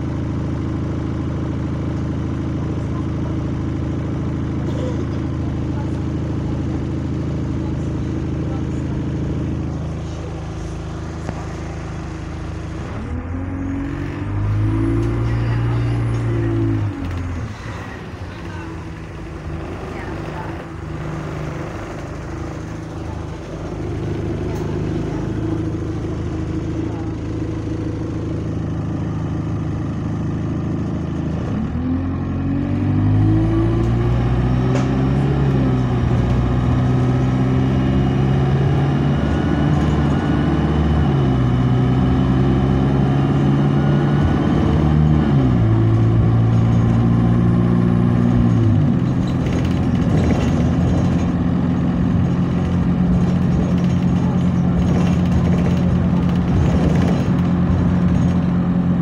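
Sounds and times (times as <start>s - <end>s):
bus diesel engine revving: 0.0s - 59.0s.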